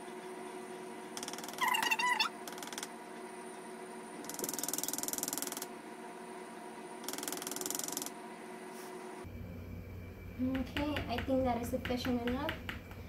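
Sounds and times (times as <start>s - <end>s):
faint steady hum: 0.0s - 13.0s
rapid mechanical clicking: 4.2s - 5.7s, 7.0s - 8.2s.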